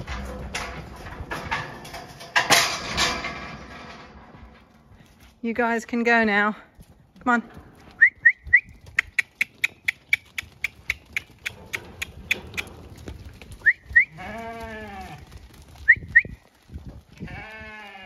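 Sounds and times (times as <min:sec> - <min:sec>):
sheep bleating: 0:14.0 - 0:15.3, 0:17.2 - 0:18.0.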